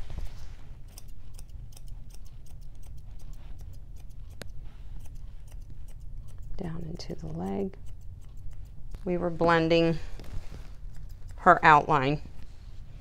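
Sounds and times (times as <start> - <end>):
grooming shears snipping fur: 0.0 - 13.0.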